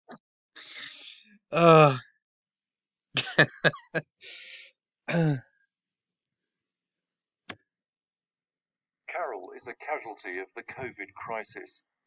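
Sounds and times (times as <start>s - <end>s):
breathy sigh: 0.6s - 2.0s, 4.2s - 5.4s
person coughing: 5.1s - 5.4s.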